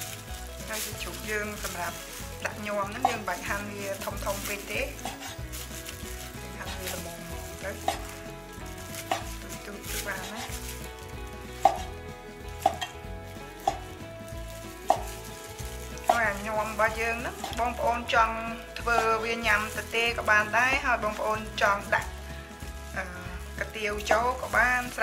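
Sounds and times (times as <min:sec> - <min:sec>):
cleaver chopping on wooden board: 0:11.6 - 0:11.9, 0:14.8 - 0:15.2.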